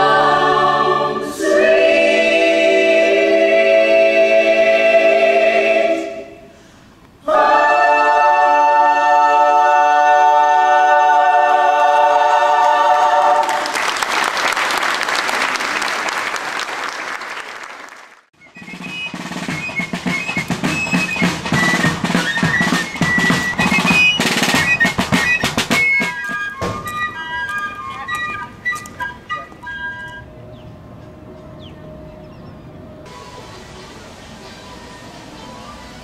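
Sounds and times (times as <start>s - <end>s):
a cappella choir singing: 0.0s - 6.6s, 7.2s - 13.7s
audience applauding: 12.9s - 18.3s
snare drum strokes: 18.4s - 27.7s
high fife melody: 18.5s - 36.0s.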